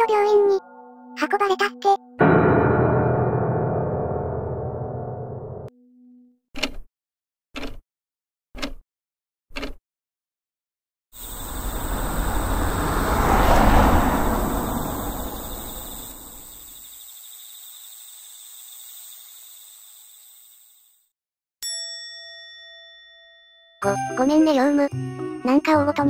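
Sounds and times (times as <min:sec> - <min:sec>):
vehicle driving past: 0:11.2 - 0:16.7
insects trilling: 0:11.2 - 0:21.0
bell-like chime: 0:21.6 - 0:24.3.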